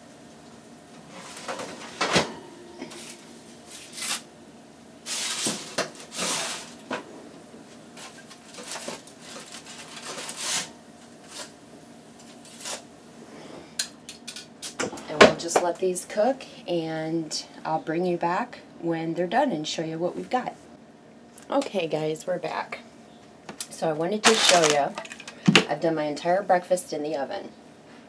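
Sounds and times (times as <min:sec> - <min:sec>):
foil rustling: 0:02.9 - 0:04.3, 0:05.0 - 0:06.9, 0:08.0 - 0:11.6, 0:24.2 - 0:25.1.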